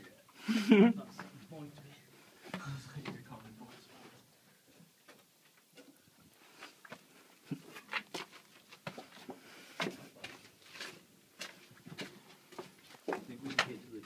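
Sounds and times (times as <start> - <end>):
footsteps on gritty floor: 7.9 - 13.8.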